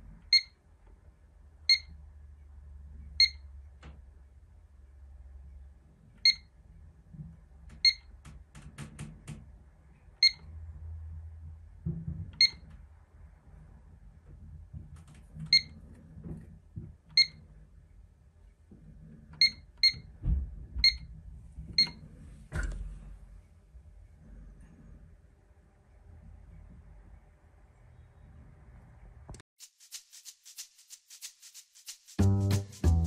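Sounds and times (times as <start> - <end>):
keypad beeps: 0.3 - 0.6, 1.7 - 1.9, 3.2 - 3.4, 6.2 - 6.5, 7.8 - 8.2, 10.2 - 10.4, 12.4 - 12.6, 15.5 - 15.8, 17.1 - 17.4, 19.4 - 20.1, 20.8 - 21.1, 21.8 - 22.0.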